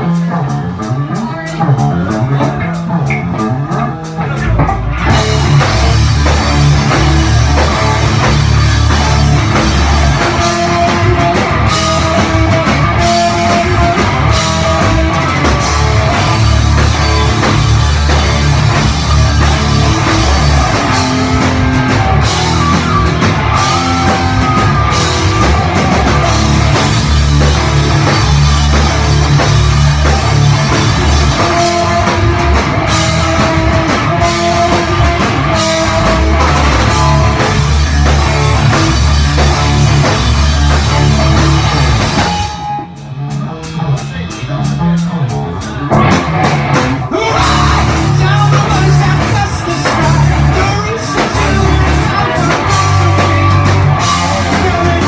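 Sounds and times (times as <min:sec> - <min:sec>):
live rock band: 0:00.0 - 0:55.0.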